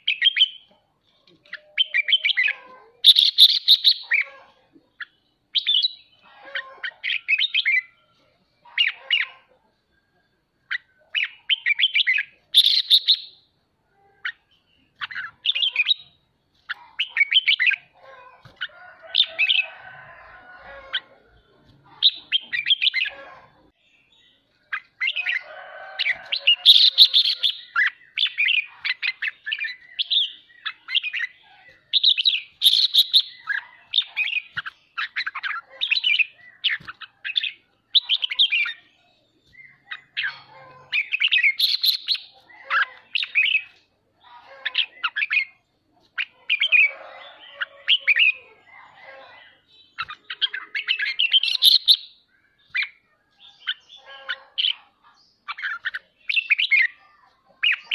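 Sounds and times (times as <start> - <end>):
bird singing and chattering: 0.0 - 8.0, 10.7 - 13.5, 14.2 - 19.8, 20.8 - 57.9.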